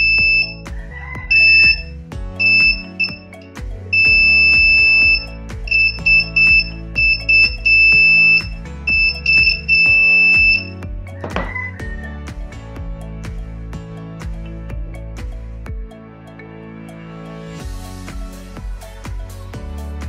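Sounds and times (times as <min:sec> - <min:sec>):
high-pitched buzzer beeping: 0:00.0 - 0:00.5, 0:01.4 - 0:03.3, 0:04.0 - 0:10.7
background music: 0:00.0 - 0:20.0.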